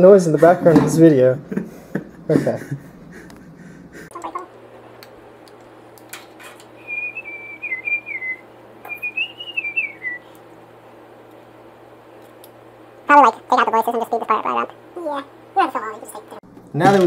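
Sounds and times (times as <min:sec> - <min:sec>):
person whistling a tune: 0:06.8 - 0:10.2.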